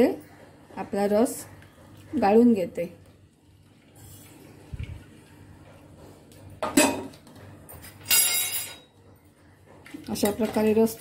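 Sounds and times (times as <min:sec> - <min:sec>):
utensils clinking on metal strainer: 0:07.8 - 0:08.9.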